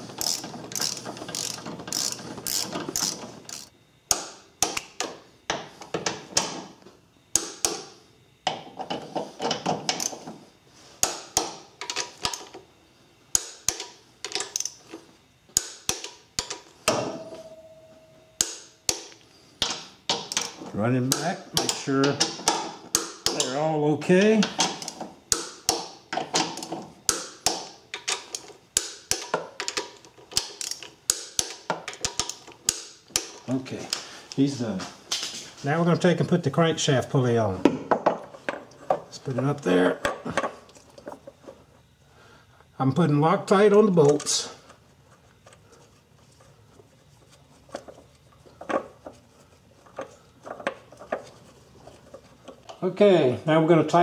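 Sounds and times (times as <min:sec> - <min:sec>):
torque wrench clicks: 0:00.2 - 0:03.7, 0:13.4 - 0:14.8.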